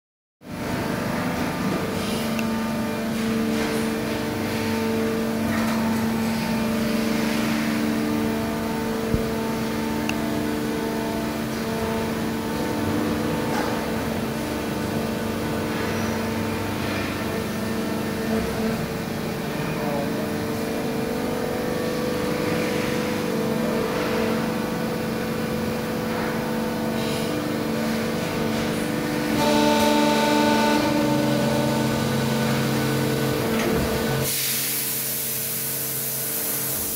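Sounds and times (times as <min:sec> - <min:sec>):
machine humming with held tones: 0:00.4 - 0:36.9
higher machine tone: 0:27.0 - 0:35.7.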